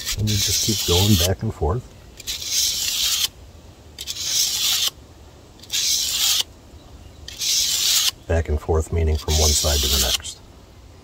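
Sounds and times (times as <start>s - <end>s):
knife scraping on sandpaper: 0.0s - 1.5s, 2.2s - 3.4s, 4.0s - 5.0s, 5.6s - 6.5s, 7.3s - 8.2s, 9.1s - 10.3s.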